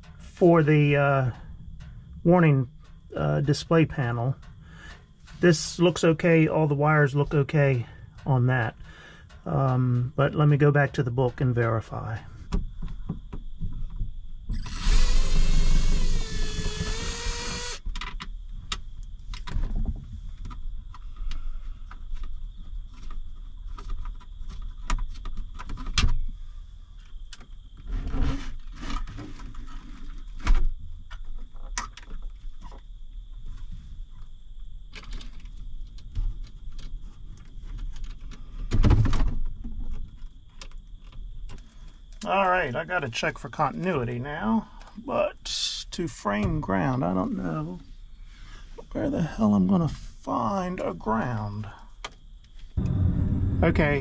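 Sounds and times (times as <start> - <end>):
cordless screwdriver motor whine: 14.5 - 17.8.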